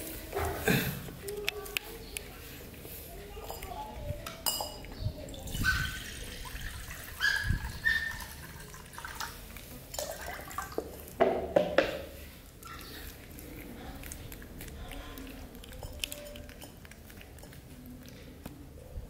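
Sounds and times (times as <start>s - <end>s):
water pouring into bowl: 5.5s - 11.2s.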